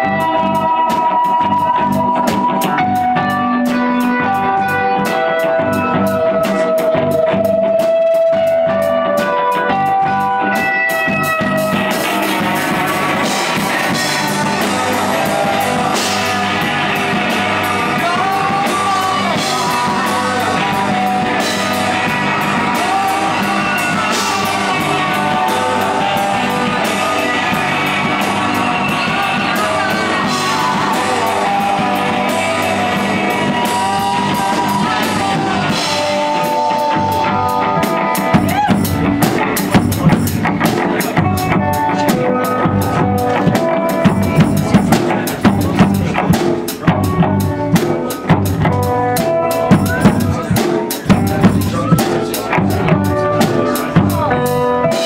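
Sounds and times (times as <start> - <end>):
lead vocalist singing: 0.0 - 8.5, 9.2 - 55.0
live rock band playing: 0.0 - 55.0.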